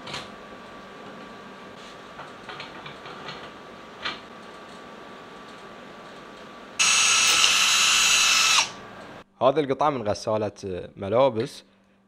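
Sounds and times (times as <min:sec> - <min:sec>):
electric drill whining: 0:06.8 - 0:08.8.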